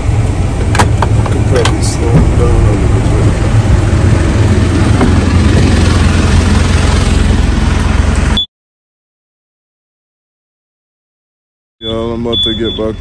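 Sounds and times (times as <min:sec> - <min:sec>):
vehicle engine rumble and road noise: 0:00.0 - 0:08.5, 0:11.8 - 0:13.0.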